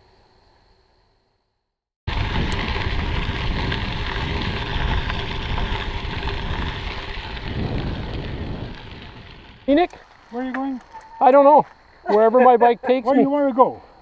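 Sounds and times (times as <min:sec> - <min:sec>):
wind buffeting microphone: 0:02.1 - 0:11.2
bicycle tyres rolling on gravel: 0:02.1 - 0:14.0.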